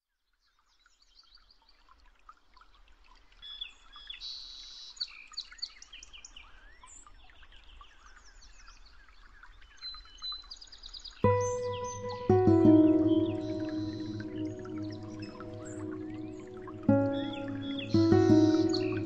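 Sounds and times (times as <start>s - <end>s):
small birds chirping: 11.2s - 19.0s.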